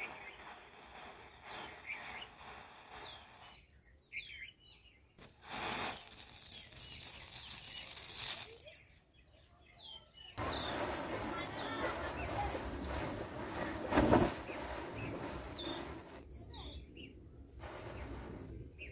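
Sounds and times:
matchsticks flaring with crackling hiss: 0.0s - 3.7s, 5.2s - 8.8s, 10.4s - 16.3s, 17.6s - 18.8s
firecracker fuse hissing: 0.0s - 4.4s, 5.2s - 8.9s, 10.4s - 18.9s
faint birds chirping: 0.0s - 5.2s, 6.3s - 18.9s.

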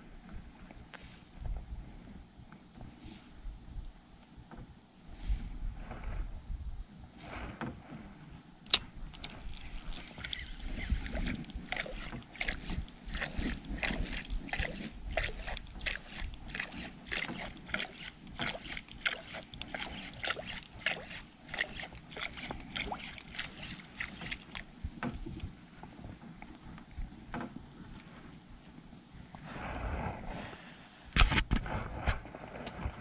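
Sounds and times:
water slapping against boat hull: 8.8s - 28.6s.

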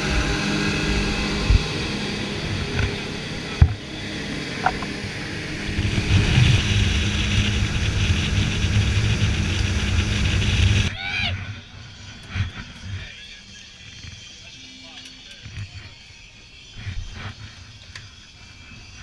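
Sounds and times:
outboard motors driving boat: 0.0s - 18.8s
wind: 0.0s - 19.0s.

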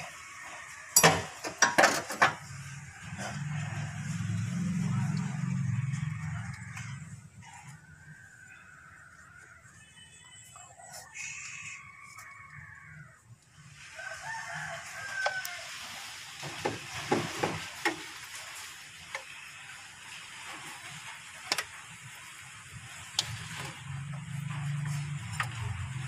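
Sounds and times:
clicks and knocks of engine parts: 0.9s - 7.1s, 16.4s - 18.4s, 20.4s - 26.0s
rooster crowing: 2.6s - 16.2s.

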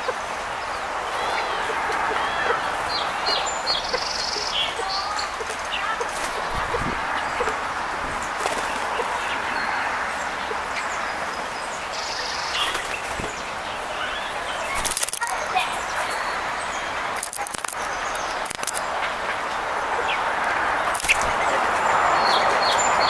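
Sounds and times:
small songbirds chirping: 0.0s - 23.0s
steady outdoor hiss: 0.0s - 23.0s
bird wings fluttering: 8.1s - 9.2s, 12.6s - 13.5s, 14.7s - 15.4s, 17.2s - 17.8s, 20.9s - 21.4s.

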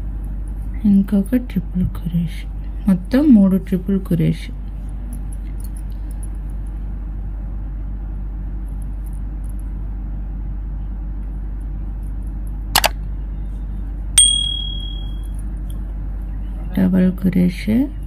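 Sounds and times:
steady low hum: 0.0s - 16.7s
bell ding: 14.2s - 15.3s.

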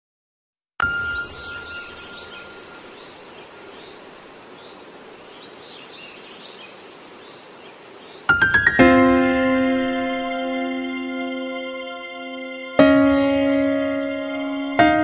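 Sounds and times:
ringing chime tone: 0.8s - 2.9s.

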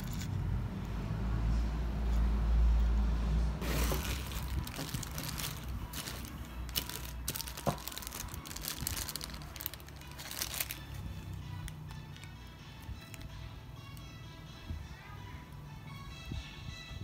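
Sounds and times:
plastic bags crinkling: 3.6s - 11.1s.

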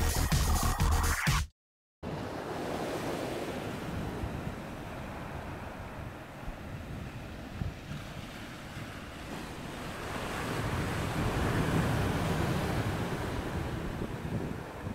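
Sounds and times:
sea waves washing onto shore: 2.1s - 14.9s
wind buffeting microphone: 3.8s - 14.9s.

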